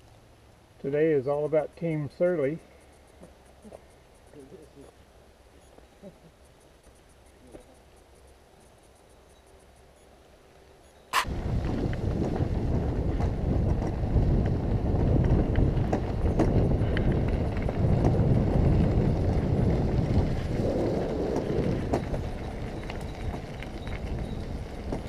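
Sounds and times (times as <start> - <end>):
wind and tyre rumble: 0.0 - 25.0
bicycle clicks and rattles: 11.2 - 25.0.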